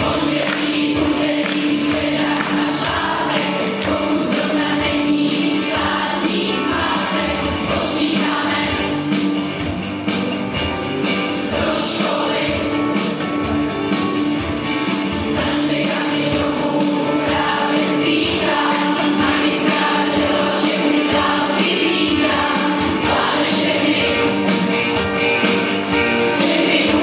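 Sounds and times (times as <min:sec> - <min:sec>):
choir singing long notes: 0:00.0 - 0:09.2, 0:11.5 - 0:12.9, 0:15.2 - 0:24.8, 0:26.2 - 0:27.0.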